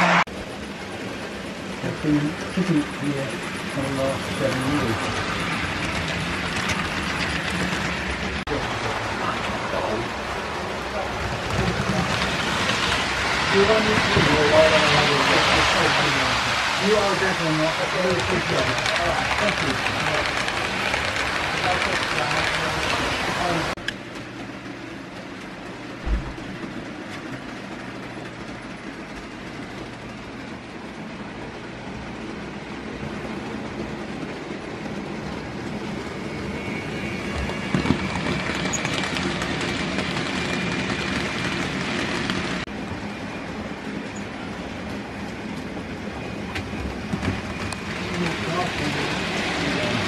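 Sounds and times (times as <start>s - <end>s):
model train wheels rumbling: 0.0s - 31.6s, 44.8s - 50.0s
low thud: 26.0s - 26.5s.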